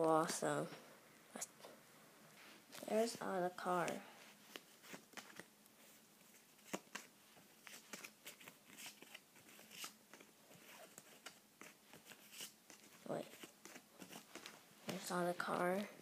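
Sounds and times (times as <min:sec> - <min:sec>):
trading cards clicking and rustling: 0:06.5 - 0:15.9.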